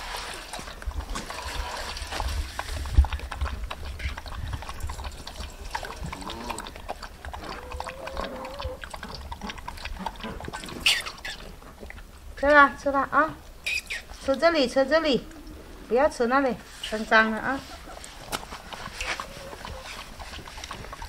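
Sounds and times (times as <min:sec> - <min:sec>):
dog lapping from metal bowl: 0:00.0 - 0:12.2, 0:17.7 - 0:21.0
milk dribbling: 0:00.0 - 0:16.2, 0:17.2 - 0:21.0.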